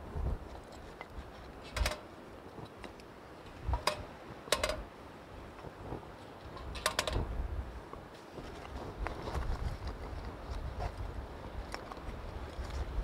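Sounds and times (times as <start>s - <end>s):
wind rumble on microphone: 0.0s - 2.8s, 3.4s - 13.0s
wooden sticks clicking and knocking: 3.7s - 4.8s, 6.4s - 7.2s.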